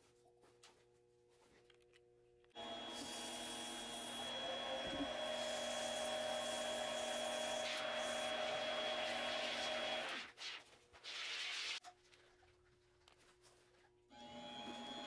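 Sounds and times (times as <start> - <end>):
lathe motor whine: 2.6 - 10.1.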